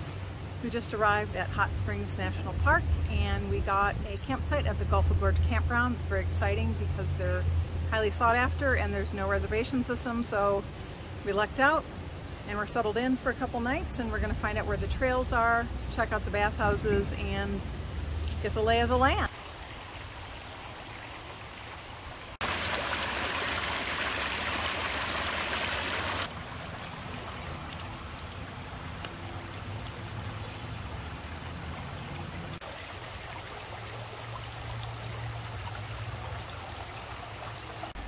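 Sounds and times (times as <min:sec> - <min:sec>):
creek water running over rocks: 0:00.0 - 0:38.0
thin water trickle: 0:17.9 - 0:38.0
water drips: 0:18.1 - 0:38.0.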